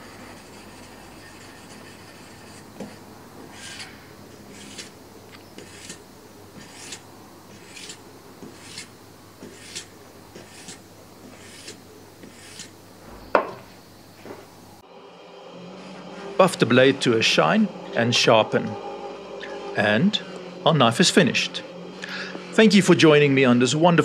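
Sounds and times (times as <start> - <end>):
file rasping along knife blade: 0.0 - 12.8.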